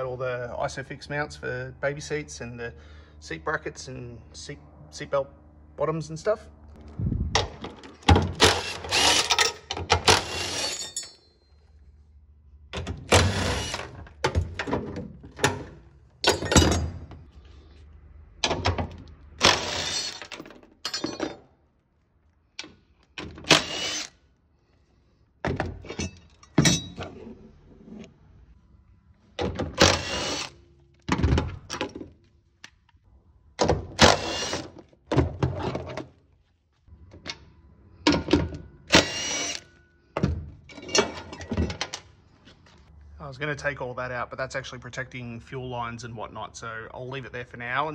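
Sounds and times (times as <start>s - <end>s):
impact driver hammering: 8.1s - 10.8s.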